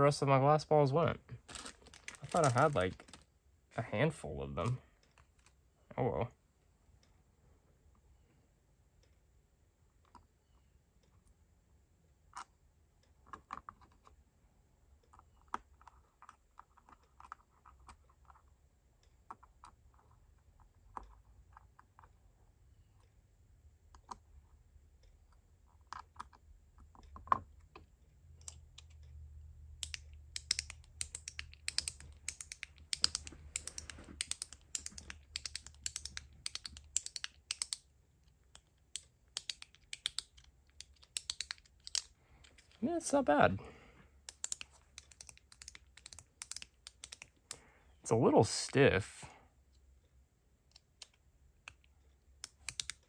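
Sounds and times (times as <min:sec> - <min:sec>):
fidget toy sharp clicks: 0:29.8 - 0:37.9, 0:38.6 - 0:42.7, 0:44.3 - 0:47.6, 0:52.4 - 0:53.0
small clicks of parts handled: 0:29.8 - 0:42.8, 0:44.2 - 0:47.7, 0:50.7 - 0:53.0.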